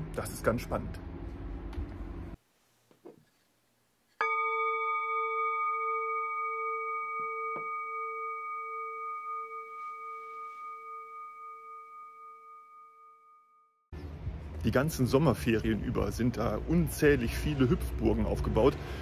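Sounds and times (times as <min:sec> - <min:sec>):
singing bowl ringing: 0:04.1 - 0:13.9.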